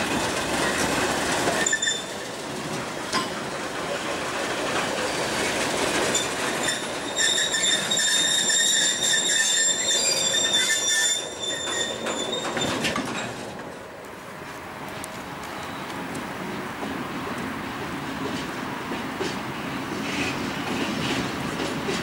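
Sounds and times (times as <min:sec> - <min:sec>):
train wheels rumbling and clacking: 0:00.0 - 0:22.0
high-pitched wheel squeal: 0:01.6 - 0:02.2, 0:06.2 - 0:13.0.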